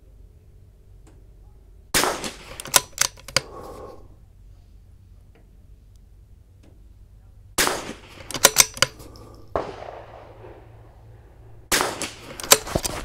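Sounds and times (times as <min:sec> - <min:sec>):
rifle shots: 0:01.9 - 0:03.2, 0:07.6 - 0:13.0
rifle bolt metallic clicks: 0:02.0 - 0:03.7, 0:07.7 - 0:09.6, 0:11.8 - 0:13.0.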